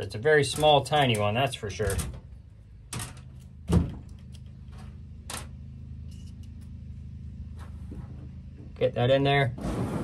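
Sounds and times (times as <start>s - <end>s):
steady low hum: 0.0s - 10.0s
screwdriver and metal parts clicking: 6.1s - 6.7s.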